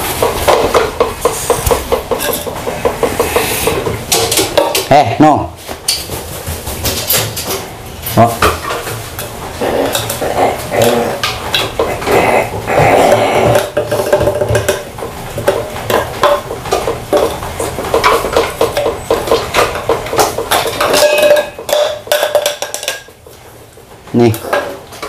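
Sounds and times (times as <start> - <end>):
crow pecking at plastic tray: 8.5 - 25.0.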